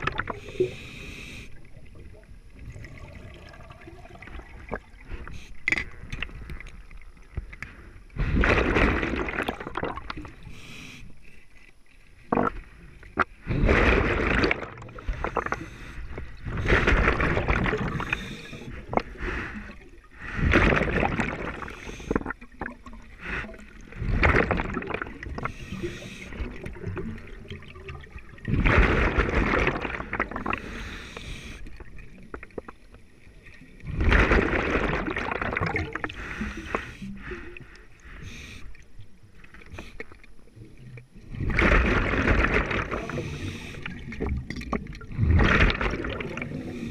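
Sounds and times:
underwater bubbles rushing and gurgling: 0.0s - 46.9s.

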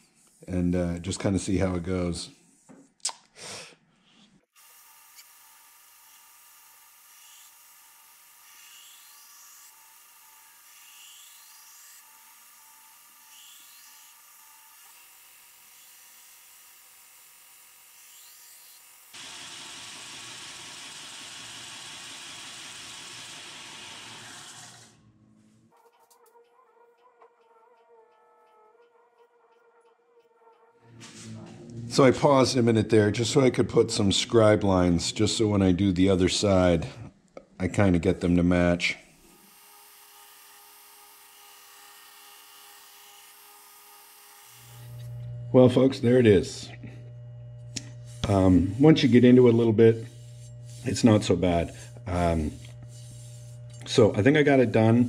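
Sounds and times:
belt grinder grinding steel: 4.5s - 25.0s, 39.2s - 55.0s.

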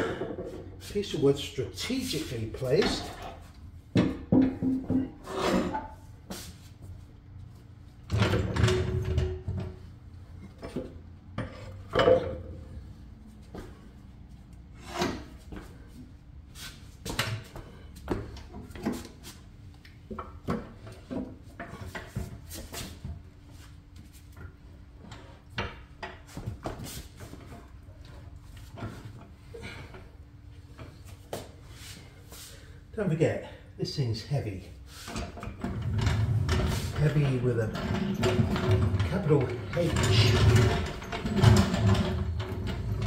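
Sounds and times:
metal clunking and knocking on wood: 2.8s - 6.0s, 8.0s - 12.6s, 35.2s - 43.0s
metal scraping on wood: 4.8s - 6.0s, 35.1s - 43.0s.

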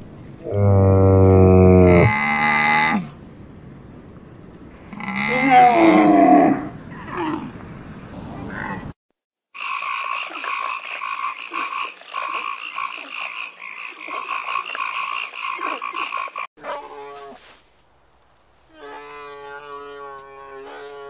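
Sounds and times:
rapid pulsing animal trill: 9.6s - 16.5s.

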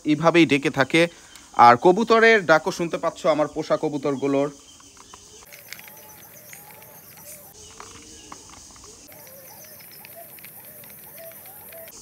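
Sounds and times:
crickets trilling: 0.0s - 12.0s
pigeons cooing: 4.9s - 12.0s.

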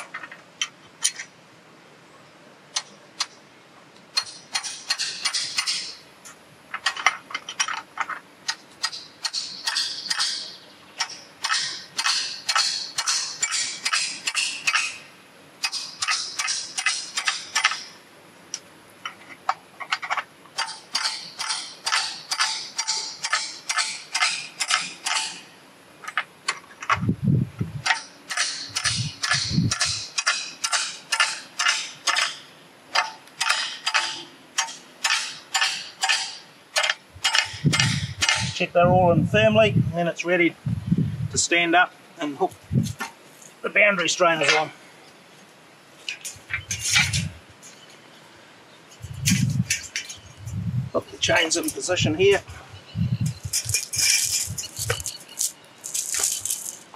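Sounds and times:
hammer striking steel wedges: 8.8s - 17.9s.

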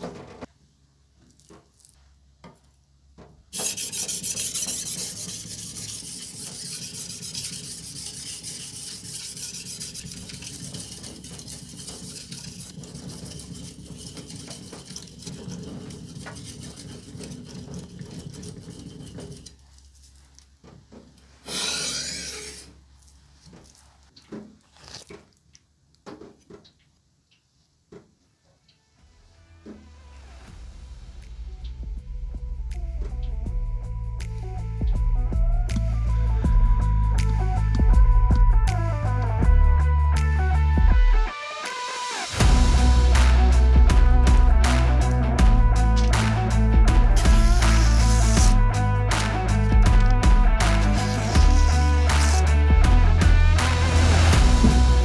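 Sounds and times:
knife scraping on whetstone: 3.5s - 20.4s, 21.4s - 22.7s, 47.2s - 48.6s, 50.6s - 52.4s.

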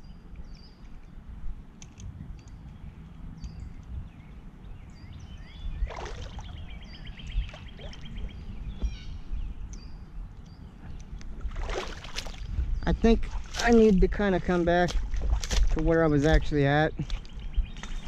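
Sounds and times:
birds chirping: 0.0s - 18.0s
bird trill: 2.4s - 11.1s
water sloshing: 5.8s - 8.4s, 11.4s - 12.5s, 13.1s - 15.9s
boots squelching in mud: 11.4s - 12.5s, 13.2s - 18.0s.

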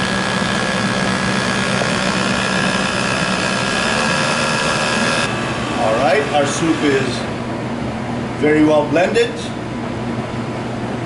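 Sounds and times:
immersion blender motor humming: 0.0s - 7.4s.

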